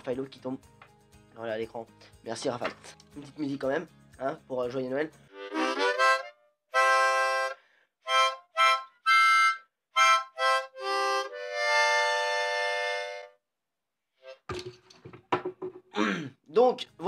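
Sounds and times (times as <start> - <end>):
harmonica chords: 5.2 - 13.4.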